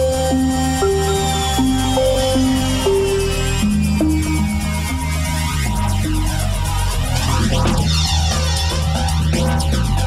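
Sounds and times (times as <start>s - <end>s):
electronic dance music: 0.0s - 10.0s.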